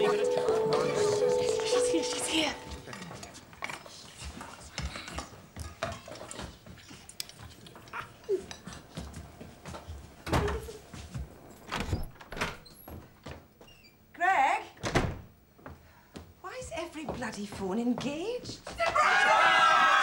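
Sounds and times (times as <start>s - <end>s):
people shuffling and rustling: 0.0s - 11.7s, 15.6s - 19.2s.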